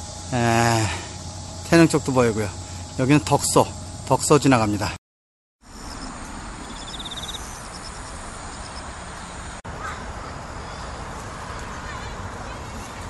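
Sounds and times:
high chirps: 5.7 - 8.9.

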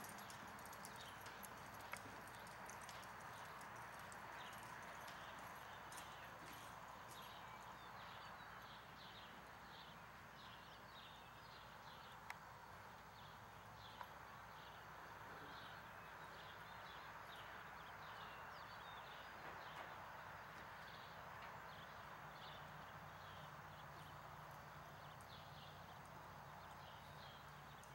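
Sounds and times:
horse hooves walking on sand: 0.0 - 8.5.

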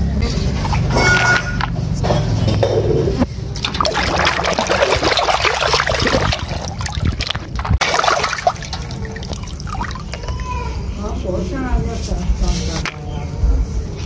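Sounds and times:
muddy water splashing: 3.4 - 10.3.

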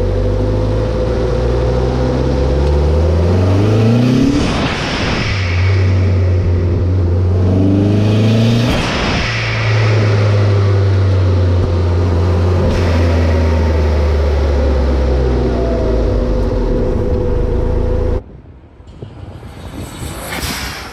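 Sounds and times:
turbocharged engine revving: 0.0 - 18.2.

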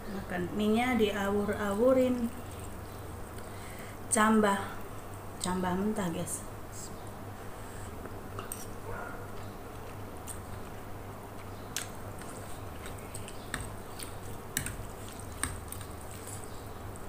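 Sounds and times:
low steady hum: 0.0 - 17.0
person slurping and chewing noodles: 12.1 - 17.0.

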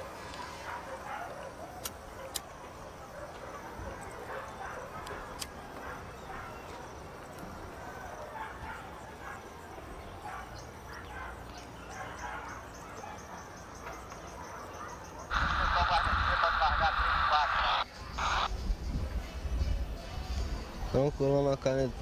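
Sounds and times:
dogs barking: 0.0 - 18.5
far-off voices: 14.2 - 18.6.

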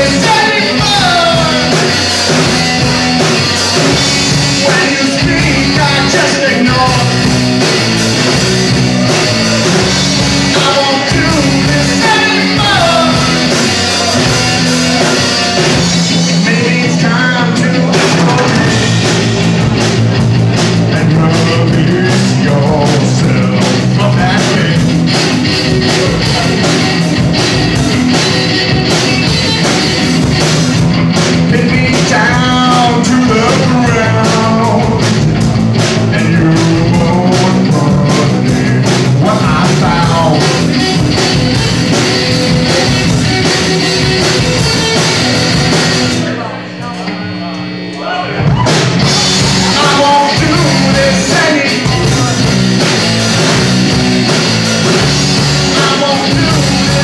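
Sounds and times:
person singing lead vocal: 0.0 - 7.6, 8.3 - 19.3, 20.8 - 24.9, 31.4 - 35.2, 36.0 - 41.0, 49.0 - 53.6, 54.5 - 57.0
rock band playing: 0.0 - 57.0.

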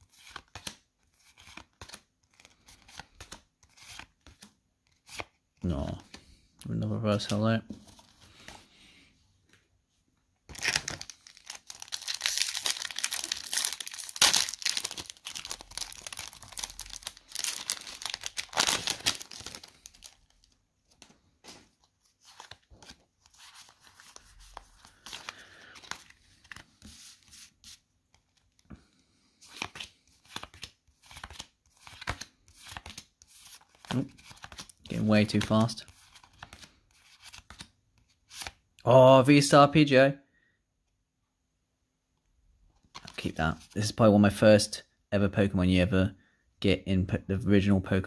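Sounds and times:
foil wrappers crinkling: 10.5 - 20.6.

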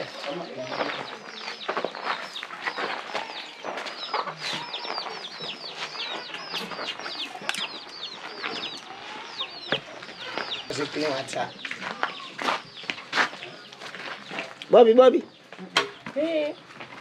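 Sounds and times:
chickens chirping: 0.0 - 17.0.

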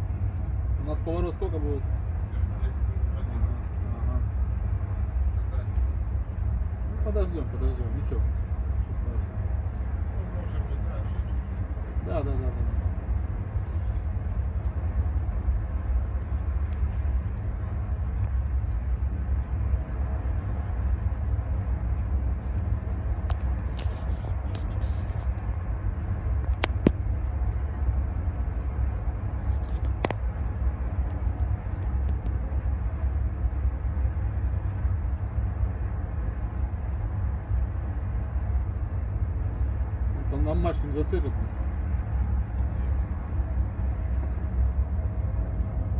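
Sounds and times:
helicopter hovering rumble: 0.0 - 45.9
sharp clicks: 18.1 - 27.7, 29.4 - 34.9.

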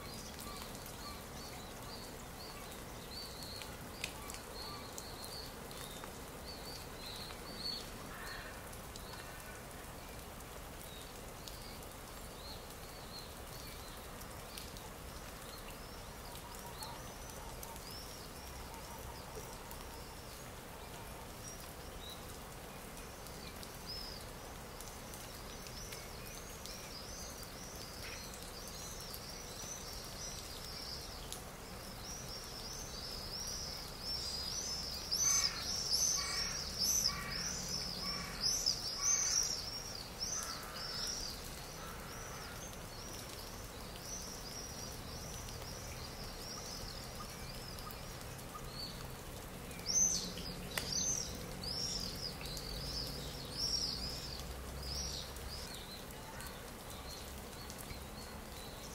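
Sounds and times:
small birds chirping: 0.0 - 58.9
crow cawing: 8.1 - 8.6, 36.2 - 37.5, 38.1 - 38.4, 40.4 - 41.0, 41.8 - 42.6.

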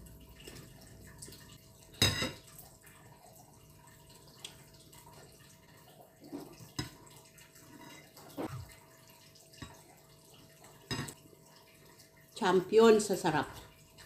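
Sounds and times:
slurping soup: 8.2 - 8.7.

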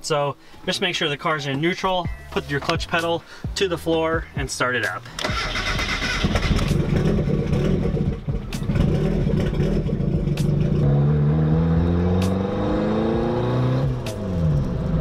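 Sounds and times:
car engine running: 5.9 - 15.0.

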